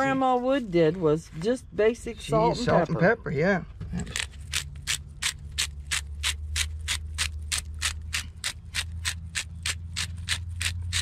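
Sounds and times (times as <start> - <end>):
pepper grinder grinding: 4.1 - 11.0.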